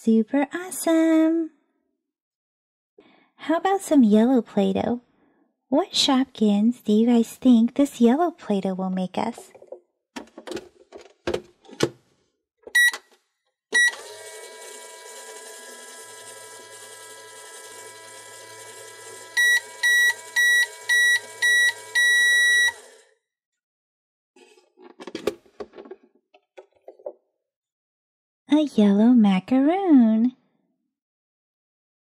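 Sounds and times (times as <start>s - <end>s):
toy microwave humming: 13.8s - 23.1s
electronic beeps: 19.4s - 22.8s.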